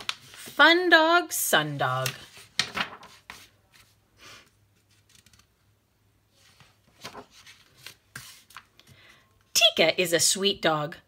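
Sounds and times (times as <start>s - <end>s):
faint paper rustles: 0.0s - 0.6s, 1.9s - 5.5s, 6.3s - 9.1s
paper page turning: 0.0s - 0.6s, 2.0s - 4.0s, 4.8s - 5.5s, 6.4s - 8.7s.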